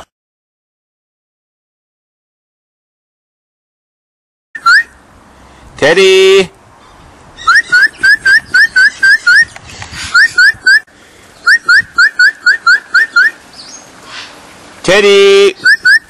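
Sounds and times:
parrot chirping: 0:04.6 - 0:05.0, 0:07.4 - 0:10.8, 0:11.4 - 0:14.4, 0:15.6 - 0:16.0
man shouting: 0:14.9 - 0:15.6.

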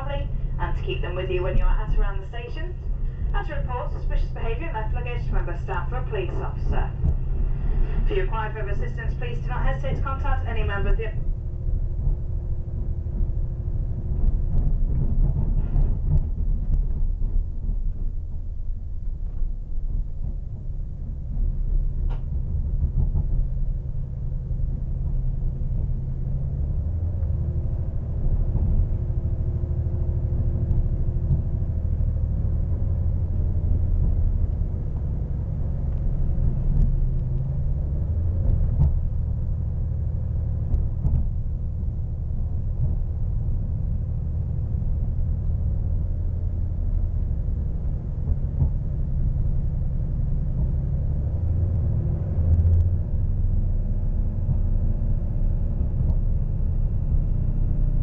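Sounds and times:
train engine and wheel rumble: 0:00.0 - 0:58.0
faint track clicks: 0:35.9 - 0:39.3, 0:52.4 - 0:52.9.

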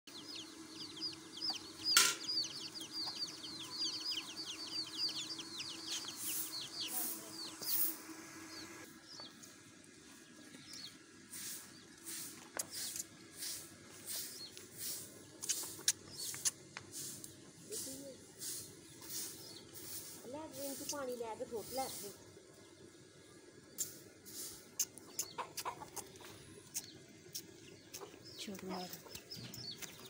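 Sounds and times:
small birds chirping: 0:00.1 - 0:30.0
short high hissing sounds: 0:06.2 - 0:08.8, 0:11.3 - 0:22.2, 0:23.8 - 0:25.3.

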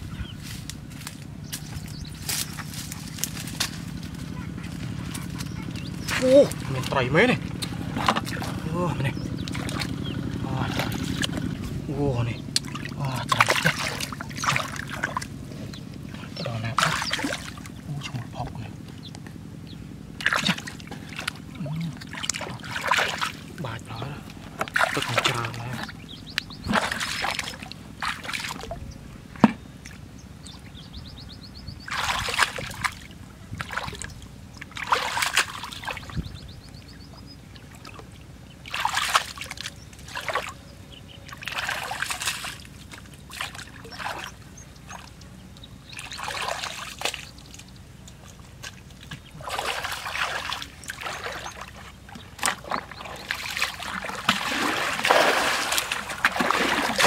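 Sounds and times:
water splashing from bucket: 0:09.4 - 0:11.6, 0:12.6 - 0:15.4, 0:16.5 - 0:17.8, 0:20.2 - 0:23.9, 0:24.6 - 0:26.0, 0:26.6 - 0:28.8, 0:31.9 - 0:36.2, 0:37.7 - 0:40.6, 0:41.3 - 0:45.1, 0:45.9 - 0:47.6, 0:48.3 - 0:57.0.

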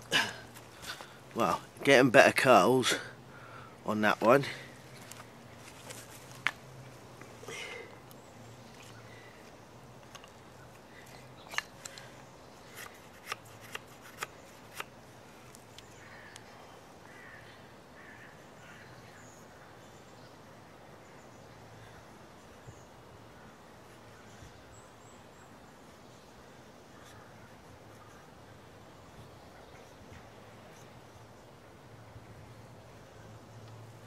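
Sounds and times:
knife shaving wood: 0:11.0 - 0:14.9.

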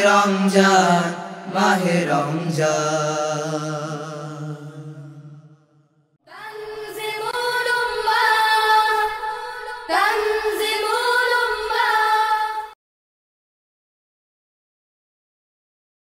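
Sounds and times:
boys singing: 0:00.0 - 0:05.0, 0:06.4 - 0:12.8
sung vocal jingle: 0:00.0 - 0:05.5, 0:06.3 - 0:12.8.

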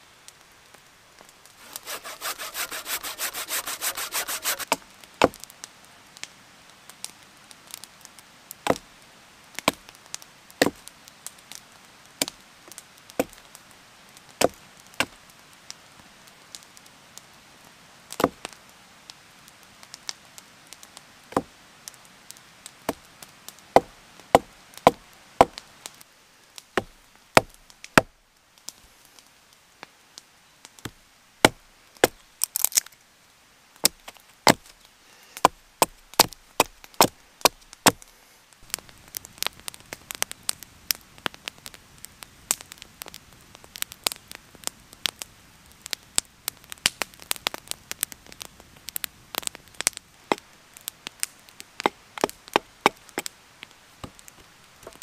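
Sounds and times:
hatchet chopping wood: 0:01.6 - 0:05.4, 0:23.8 - 0:25.6, 0:26.8 - 0:27.6, 0:35.4 - 0:38.0.

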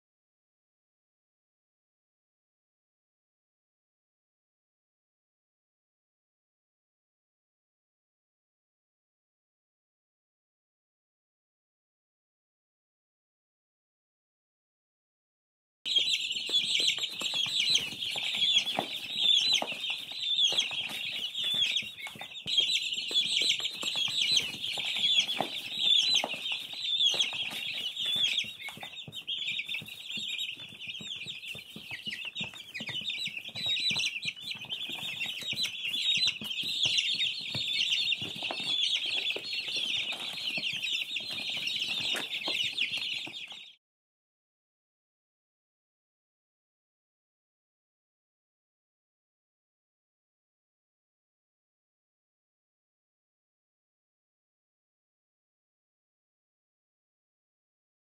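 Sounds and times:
baby chicks peeping: 0:15.9 - 0:43.8.

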